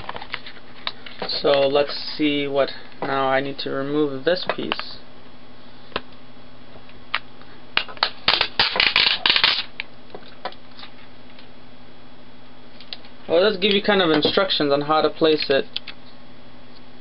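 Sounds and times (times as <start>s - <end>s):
hard plastic clicking and crackling: 7.8s - 10.6s.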